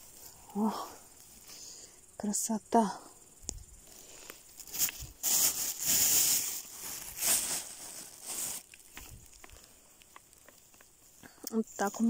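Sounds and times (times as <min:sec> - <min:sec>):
moss rustling and tearing: 0:04.5 - 0:09.5.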